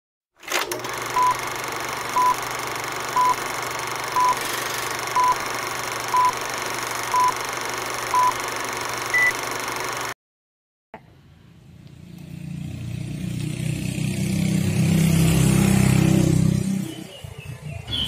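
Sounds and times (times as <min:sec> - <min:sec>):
short electronic beeps: 0:02.2 - 0:02.4, 0:03.2 - 0:03.4, 0:04.2 - 0:04.4, 0:05.2 - 0:05.4, 0:06.1 - 0:06.4, 0:07.1 - 0:07.4, 0:08.1 - 0:08.4, 0:09.1 - 0:09.4
higher beep: 0:04.2 - 0:04.4, 0:07.1 - 0:07.4, 0:08.1 - 0:08.4, 0:09.1 - 0:09.4.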